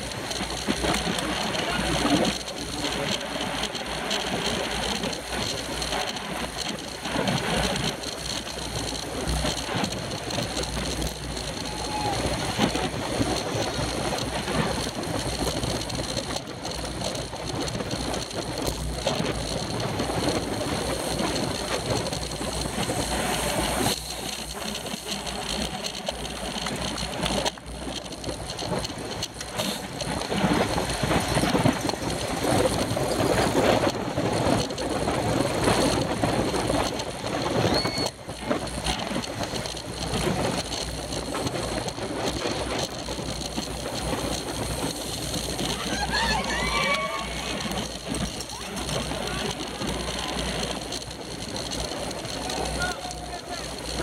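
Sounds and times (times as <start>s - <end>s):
bicycle tyre and road noise: 0.0s - 54.0s
wind rushing over microphone: 0.0s - 54.0s.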